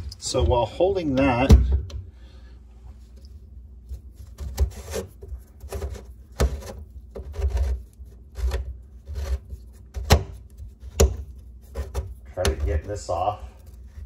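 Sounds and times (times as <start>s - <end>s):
sink strainer scraping: 3.9s - 14.0s.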